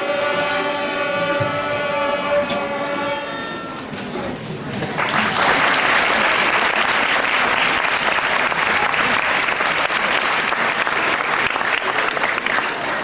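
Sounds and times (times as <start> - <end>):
audience applause: 4.8 - 13.0.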